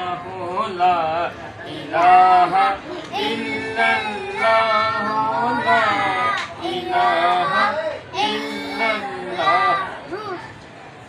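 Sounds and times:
children singing: 1.7s - 10.0s.

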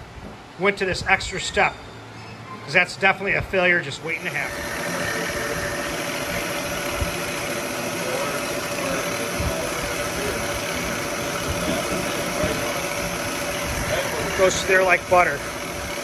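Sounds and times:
milling machine whining: 4.0s - 16.0s.

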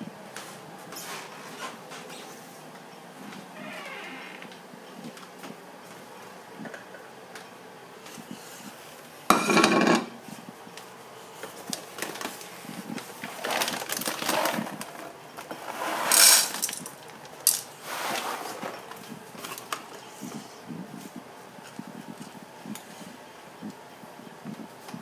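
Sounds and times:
dry cat food rattling in bowl: 13.3s - 15.0s, 16.1s - 17.7s.

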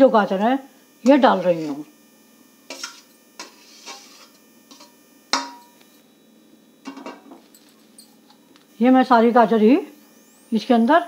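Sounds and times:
utensils clinking on metal pan: 4.7s - 5.7s, 6.9s - 7.7s.

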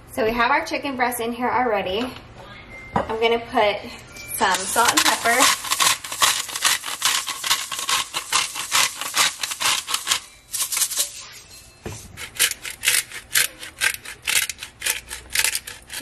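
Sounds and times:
salt and pepper grinder rasping: 4.4s - 11.4s, 12.0s - 16.0s.

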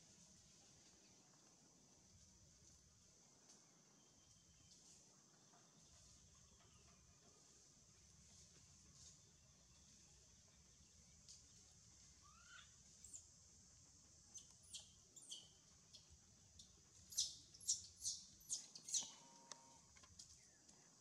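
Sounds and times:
high chirping calls: 14.3s - 16.1s, 17.1s - 19.3s.

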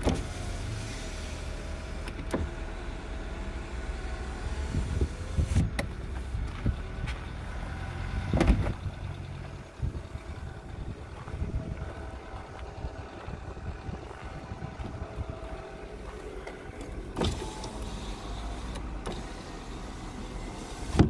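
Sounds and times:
car door latch clicks and clunks: 0.0s - 0.5s, 2.0s - 2.7s, 5.6s - 6.0s, 8.3s - 8.8s, 15.0s - 21.0s
steady low rumble: 0.0s - 21.0s.

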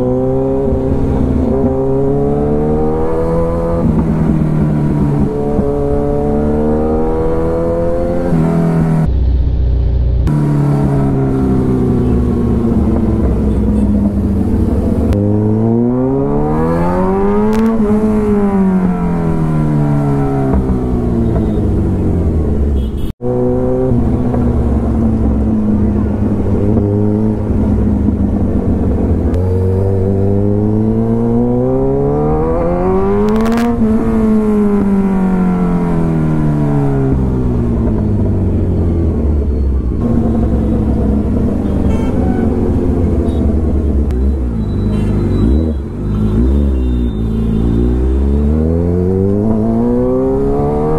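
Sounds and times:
motorcycle engine accelerating: 0.0s - 50.9s.

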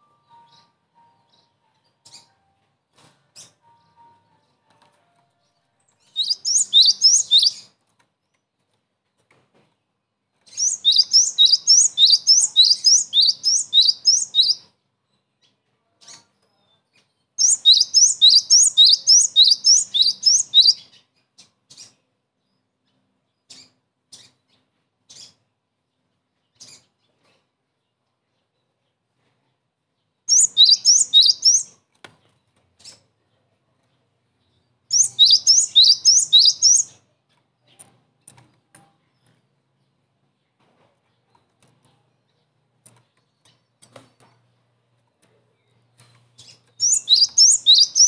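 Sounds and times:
bird singing high sweeping notes: 6.2s - 7.6s, 10.6s - 14.6s, 17.4s - 20.8s, 30.3s - 31.7s, 34.9s - 36.9s, 46.8s - 48.0s.

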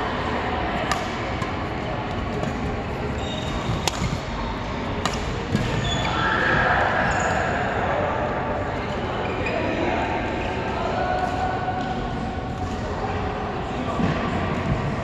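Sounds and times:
sports hall noise: 0.0s - 15.0s
rackets hitting shuttlecock: 0.8s - 1.6s, 3.4s - 6.1s.

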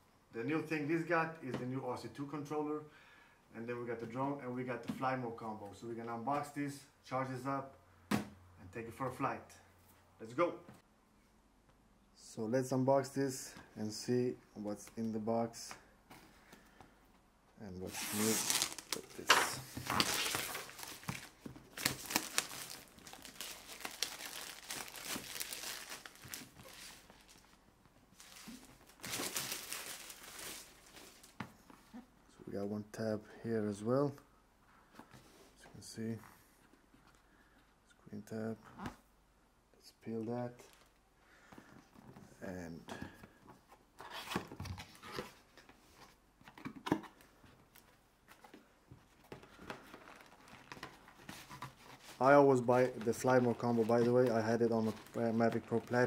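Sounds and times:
packaging rustling and tearing: 17.9s - 27.6s, 28.2s - 31.4s, 49.7s - 56.0s
packaging rustling and tapping: 18.5s - 27.4s.

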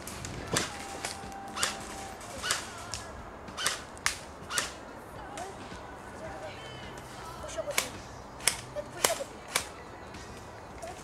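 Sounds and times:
airsoft gun shots: 0.0s - 4.8s, 7.7s - 9.8s.

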